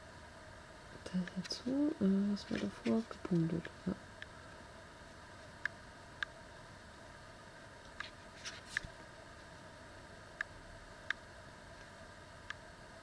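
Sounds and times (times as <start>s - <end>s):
room hiss: 0.0s - 13.0s
paper rustle: 8.4s - 8.8s.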